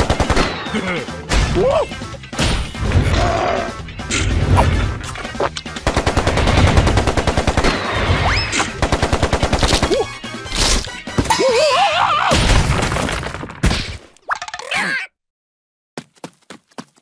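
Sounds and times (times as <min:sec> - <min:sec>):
squealing cartoon voice: 0:14.6 - 0:15.1.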